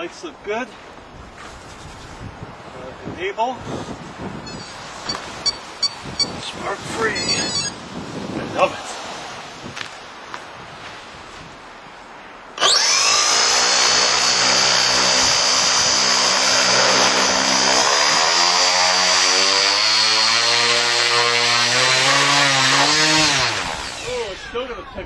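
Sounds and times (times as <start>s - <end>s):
propeller drone: 12.6s - 19.0s
electric motor whine: 12.6s - 24.6s.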